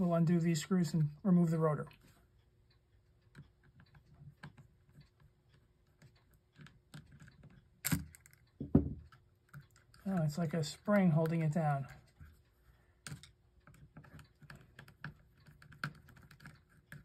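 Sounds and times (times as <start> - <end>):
faint metal clicks and scrapes: 1.0 - 17.0.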